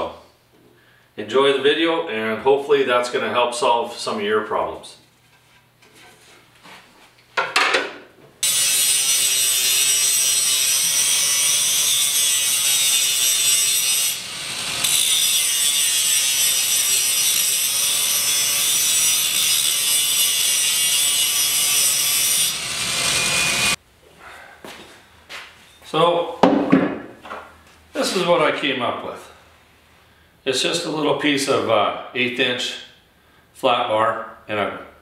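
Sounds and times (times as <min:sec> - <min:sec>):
angle grinder cutting steel: 0:08.4 - 0:23.8.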